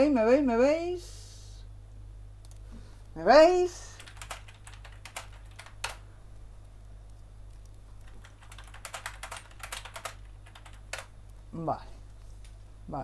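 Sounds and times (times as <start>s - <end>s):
steady low hum: 0.0s - 13.0s
typing on computer keyboard: 4.0s - 6.0s, 7.5s - 11.1s.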